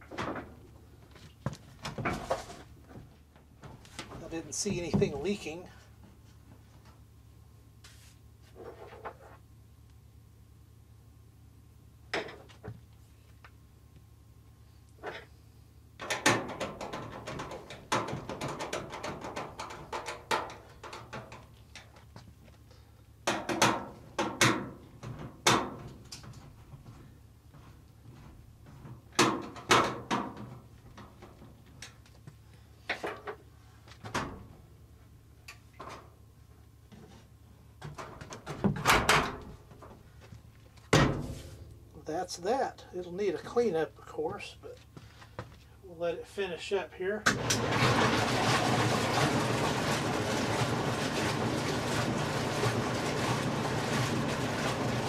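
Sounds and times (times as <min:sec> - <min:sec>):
steady low hum: 0:00.0 - 0:18.2.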